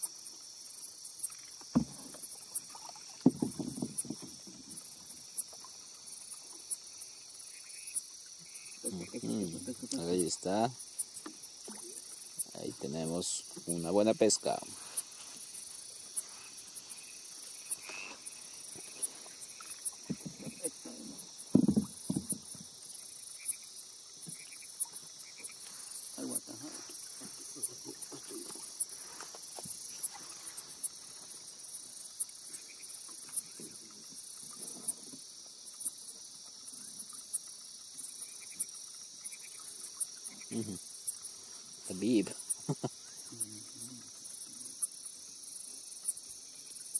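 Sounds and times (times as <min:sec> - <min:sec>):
knocks and rustles in a canoe: 0:00.0 - 0:07.0, 0:08.8 - 0:12.6, 0:13.2 - 0:23.1, 0:24.2 - 0:38.8
insect trill: 0:00.0 - 0:46.9.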